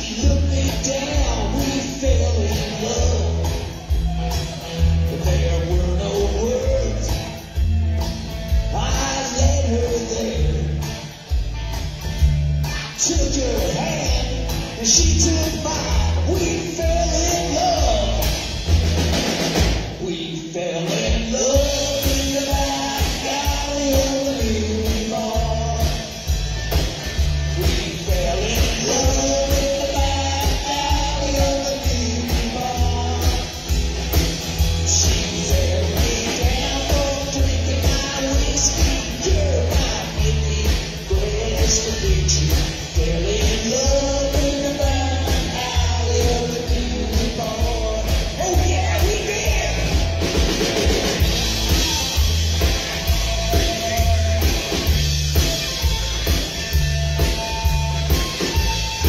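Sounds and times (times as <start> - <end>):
guitar melody line: 0.0 - 59.0
rock and roll band playing: 0.0 - 59.0.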